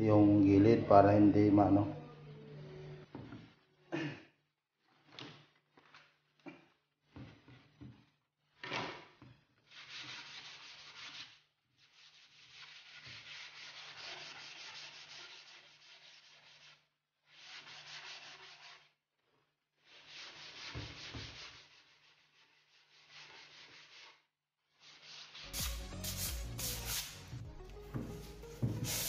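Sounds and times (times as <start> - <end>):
sandpaper scratching an edge: 9.7 - 18.9, 19.9 - 24.2, 24.8 - 27.4, 28.5 - 29.0.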